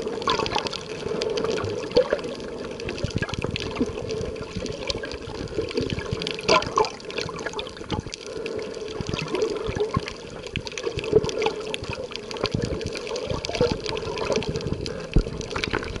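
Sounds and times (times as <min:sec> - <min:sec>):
water sloshing and bubbling: 0:00.0 - 0:16.0.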